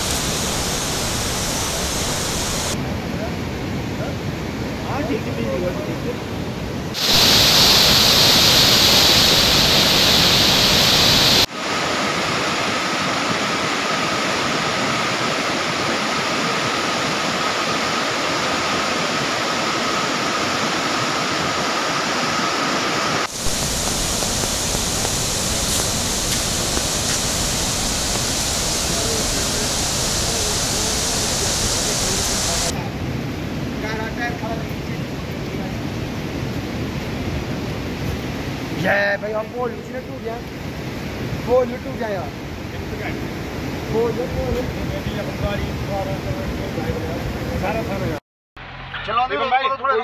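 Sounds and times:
river rushing over rocks: 0.0s - 2.8s, 6.9s - 32.7s.

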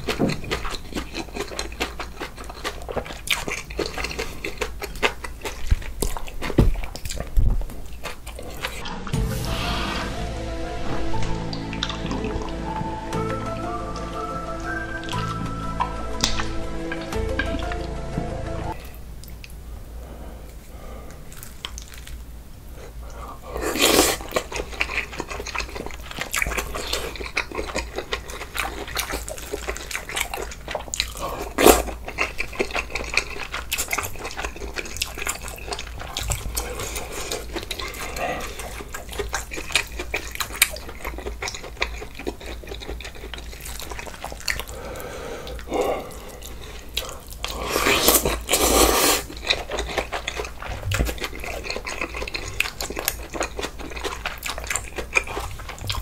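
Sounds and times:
wet chewing and slurping: 0.0s - 9.2s, 21.1s - 56.0s.

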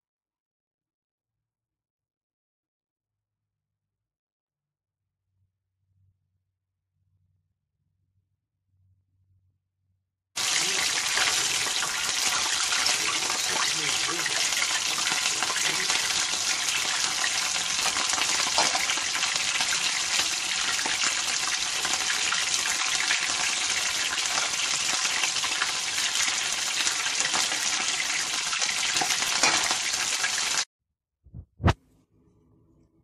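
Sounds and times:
chicken deep-frying in oil: 10.4s - 30.7s.

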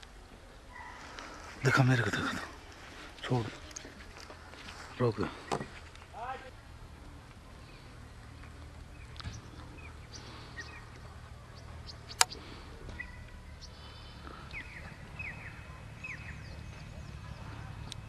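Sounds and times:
birds chirping: 0.0s - 18.0s
low steady rumble: 0.0s - 18.0s
sharp click: 12.1s - 12.4s.

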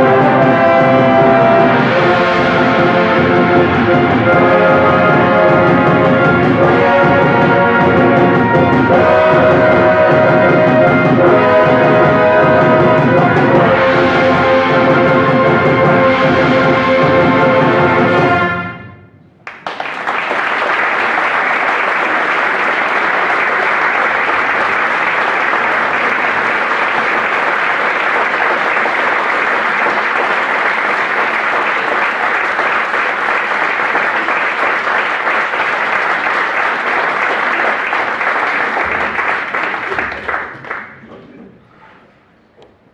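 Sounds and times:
audience applauding: 19.4s - 41.2s.

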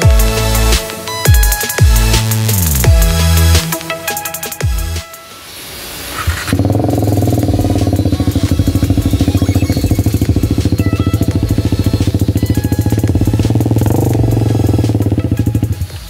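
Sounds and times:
motorcycle engine idling: 6.5s - 16.0s.

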